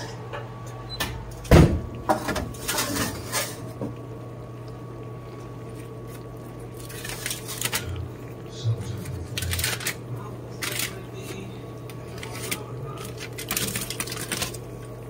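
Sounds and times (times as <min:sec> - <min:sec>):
steady low hum: 0:00.0 - 0:15.0
metal bakeware clattering: 0:02.1 - 0:03.6
aluminium foil crinkle: 0:05.7 - 0:08.0, 0:08.6 - 0:14.9.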